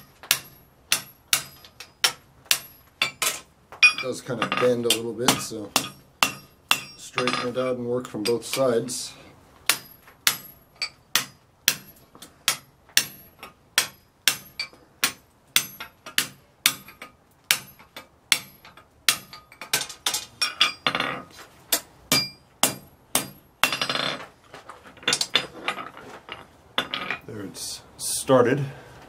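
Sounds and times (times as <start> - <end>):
hammer striking steel on anvil: 0.0 - 7.6, 9.7 - 21.1, 21.7 - 24.1
metal rattle: 23.6 - 27.3.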